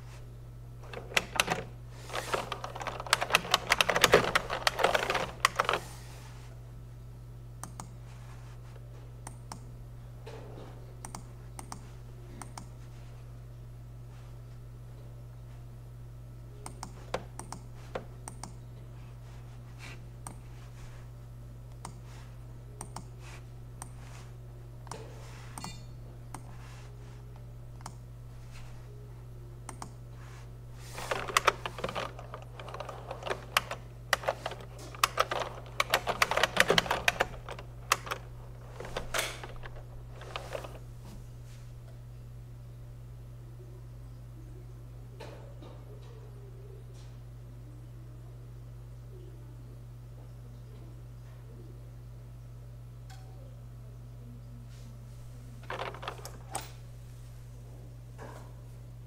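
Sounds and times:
low electrical hum: 0:00.0 - 0:59.0
typing on computer keyboard: 0:00.9 - 0:05.8, 0:31.1 - 0:40.8.

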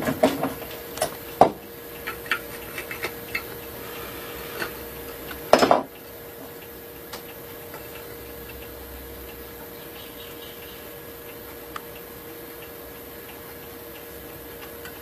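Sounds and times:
woodworking tools tapping on wood: 0:00.0 - 0:03.5.

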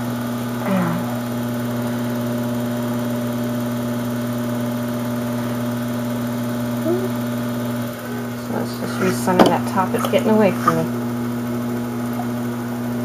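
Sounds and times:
pottery wheel motor hum: 0:00.0 - 0:13.0.

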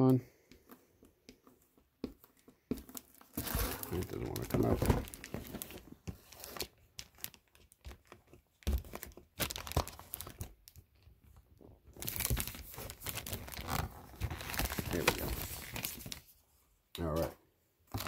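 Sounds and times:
plastic bag crinkling: 0:02.9 - 0:10.6, 0:12.0 - 0:16.2
paper sheets rustling: 0:12.1 - 0:16.3.

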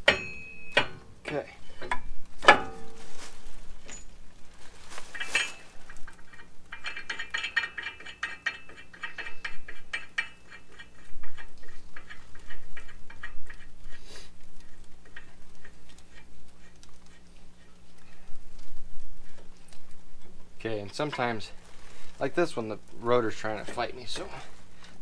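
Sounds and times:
metal clink: 0:00.0 - 0:03.0, 0:03.8 - 0:04.1, 0:05.1 - 0:11.0.

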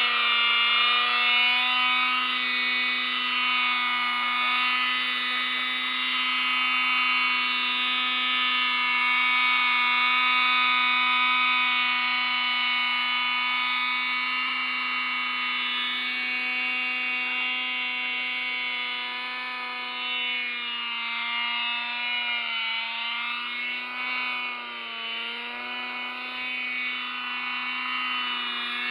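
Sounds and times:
model helicopter engine buzzing: 0:00.0 - 0:28.9.

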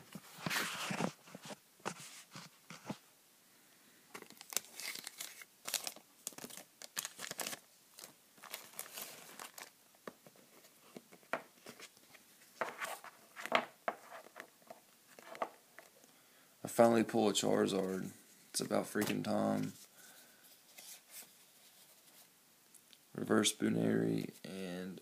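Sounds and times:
foil wrappers crinkling and tearing: 0:04.2 - 0:09.7.

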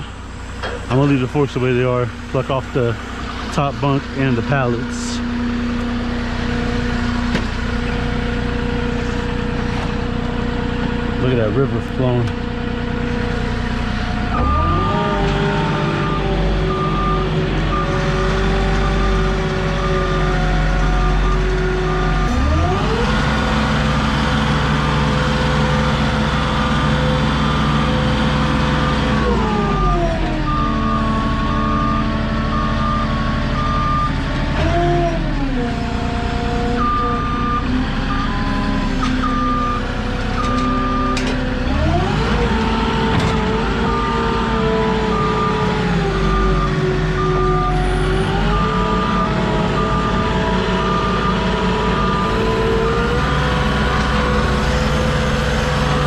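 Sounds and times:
diesel engine revving: 0:00.0 - 0:56.0
reverse alarm beeping: 0:14.3 - 0:15.2, 0:16.0 - 0:21.5, 0:28.8 - 0:34.2, 0:36.7 - 0:41.2, 0:43.8 - 0:53.0.

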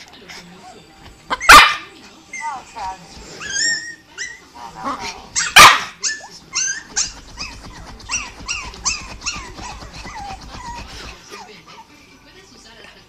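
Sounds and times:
dog whining: 0:03.3 - 0:11.9.

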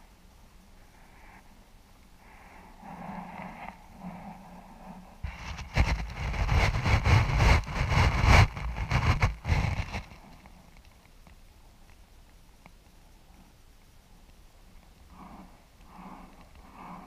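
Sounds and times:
wind buffeting microphone: 0:05.2 - 0:10.2.

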